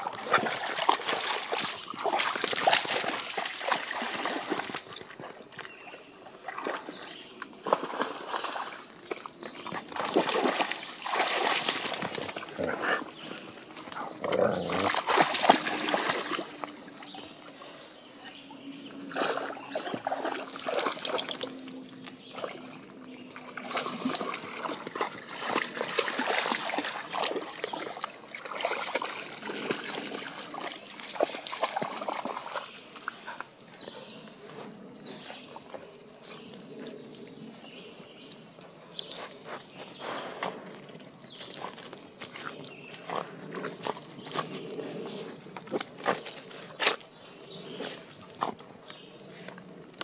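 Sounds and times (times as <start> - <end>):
dogs splashing in water: 0.0 - 17.6, 18.8 - 34.2.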